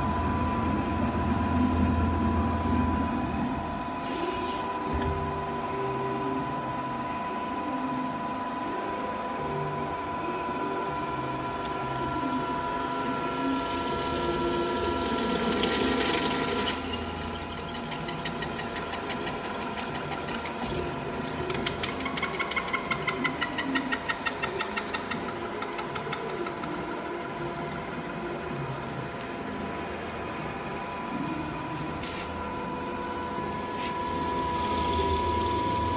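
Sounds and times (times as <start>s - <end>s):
drilling machine motors humming: 11.9s - 35.9s
rapid ticking and rattle: 15.1s - 26.9s.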